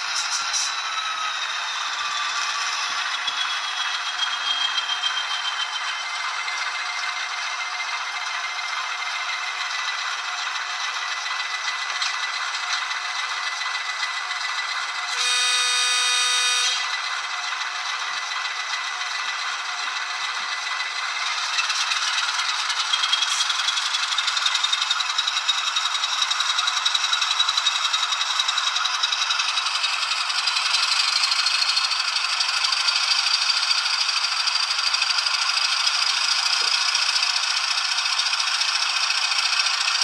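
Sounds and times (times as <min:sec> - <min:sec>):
diesel engine idling and revving: 0:00.0 - 0:40.0
locomotive horn blast: 0:15.1 - 0:16.9.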